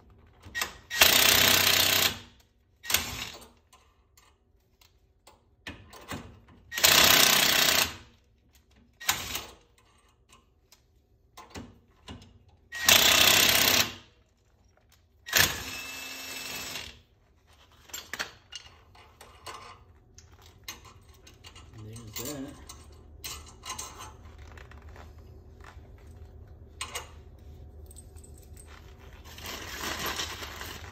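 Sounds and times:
metallic clicks and clinks: 20.4s - 24.2s.

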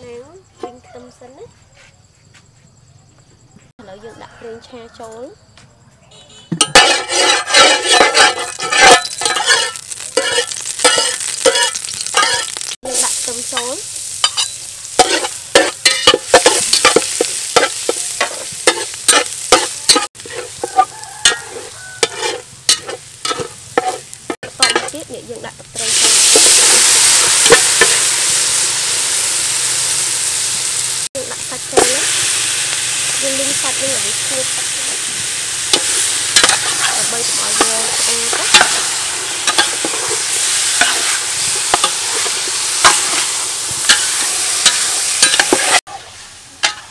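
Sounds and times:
metal utensils scraping pot: 6.6s - 12.7s, 13.5s - 25.1s, 33.2s - 46.9s
garlic sizzling in oil: 6.6s - 46.9s
liquid hissing in hot pot: 25.7s - 45.8s.

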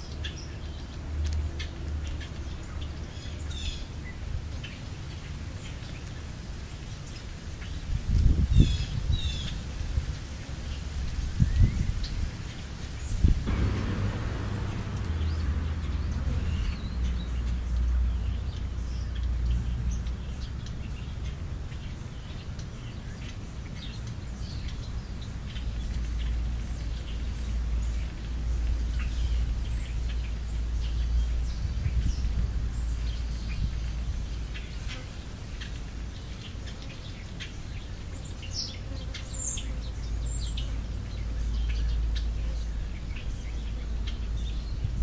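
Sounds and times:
low uneven rumble: 13.2s - 21.9s.

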